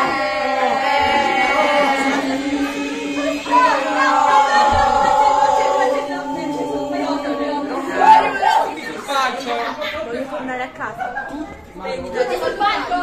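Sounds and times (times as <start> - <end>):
young voices singing together: 0.0 - 9.4.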